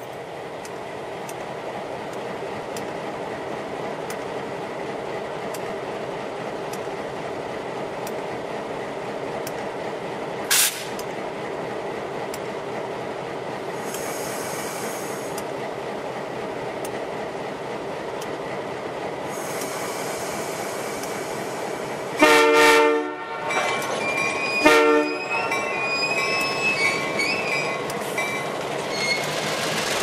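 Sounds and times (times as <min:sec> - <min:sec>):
diesel locomotive engine idling: 0:00.0 - 0:30.0
air hiss burst: 0:10.5 - 0:11.0
faint ticks: 0:19.5 - 0:20.0, 0:21.0 - 0:21.4.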